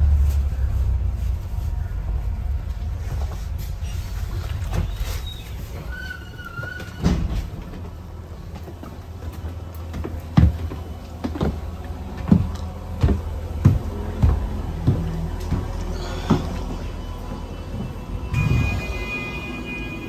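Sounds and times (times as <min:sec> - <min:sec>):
bus engine rumbling: 0:00.0 - 0:20.0
footsteps going down stairs: 0:02.5 - 0:18.8
faint squeal: 0:03.8 - 0:07.5, 0:15.9 - 0:20.0.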